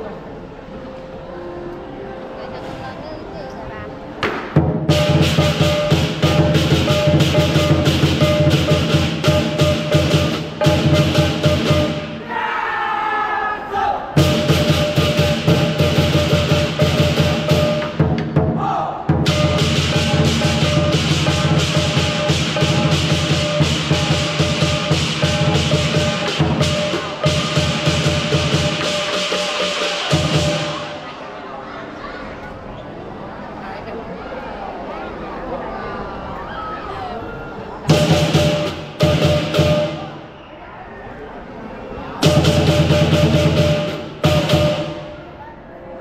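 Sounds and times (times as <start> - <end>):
barrel drum beaten fast: 4.3 - 12.1, 14.2 - 30.8, 37.9 - 40.1, 42.2 - 45.0.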